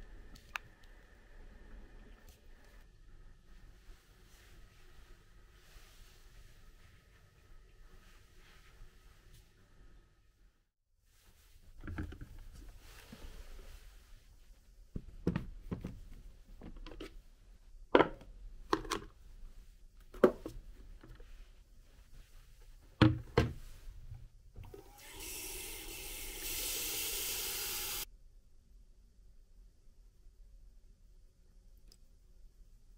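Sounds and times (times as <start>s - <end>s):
plastic parts knocking and clattering: 11.8s - 12.5s
tap water running into plastic tank: 24.6s - 28.0s.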